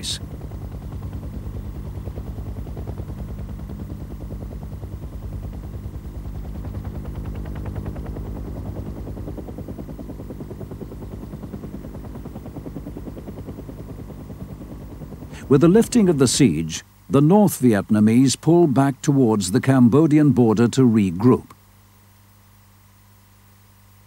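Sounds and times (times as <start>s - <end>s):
engine drone: 0.0s - 21.5s
helicopter rotor blades chopping: 0.0s - 21.5s.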